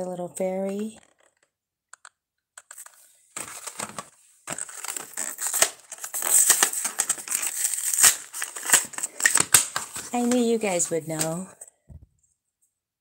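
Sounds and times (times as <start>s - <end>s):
plastic blister pack crackling: 2.6s - 11.5s.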